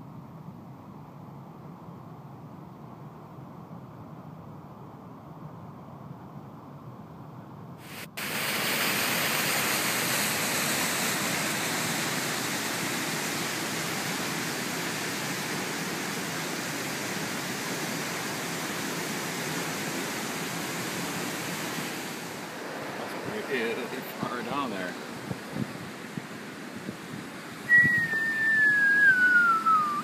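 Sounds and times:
waterfall rushing: 7.8s - 30.0s.

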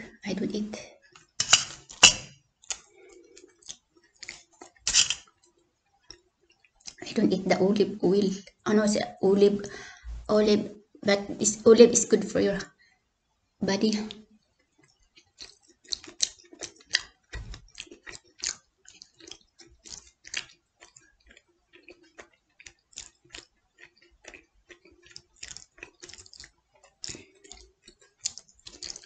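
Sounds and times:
person chewing with mouth clicks: 1.1s - 7.0s, 14.0s - 29.0s.

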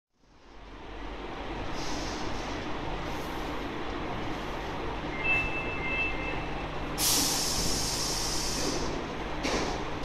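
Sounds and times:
subway train humming: 0.2s - 10.0s
loud hiss of air: 1.6s - 3.6s, 6.9s - 9.9s
short high electronic tone: 5.1s - 6.6s.

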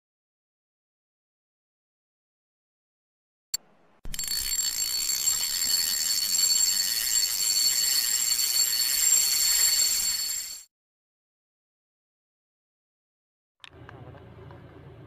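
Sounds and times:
high-pitched alarm ringing: 4.1s - 10.7s.

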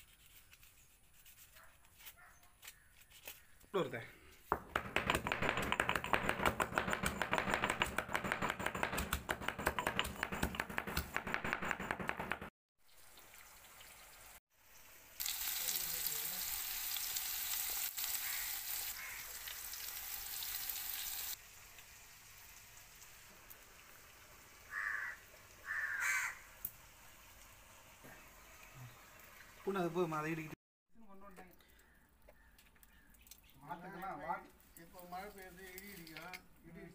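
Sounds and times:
knocking and scraping: 4.5s - 12.5s.

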